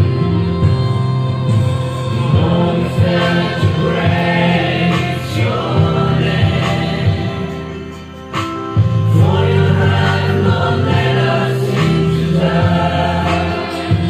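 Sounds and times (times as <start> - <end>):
mixed choir singing: 0.0 - 8.2, 8.8 - 14.0.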